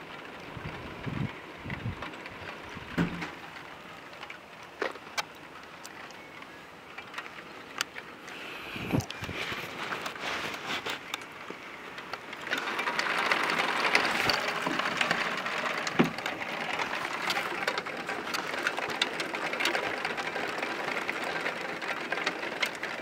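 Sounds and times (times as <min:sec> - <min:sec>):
heavy rain pouring: 0:08.1 - 0:23.0.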